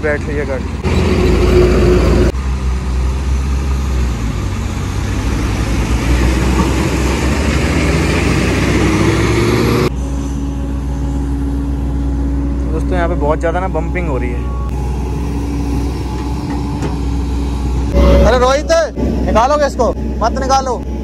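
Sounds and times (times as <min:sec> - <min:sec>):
heavy diesel engines running hard: 0:00.0 - 0:21.0
steady engine hum: 0:00.0 - 0:21.0.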